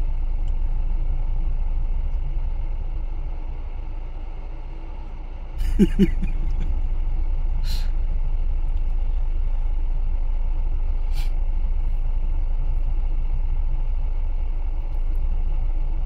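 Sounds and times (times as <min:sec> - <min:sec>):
vehicle engine rumbling: 0:00.0 - 0:16.0
short hisses: 0:07.6 - 0:07.9, 0:11.1 - 0:11.4.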